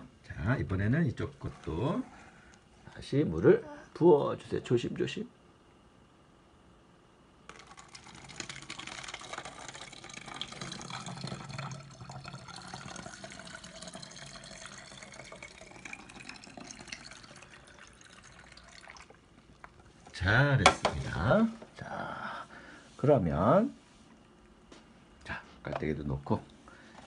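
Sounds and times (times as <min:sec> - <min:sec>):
water pouring through a funnel: 0:07.5 - 0:19.5.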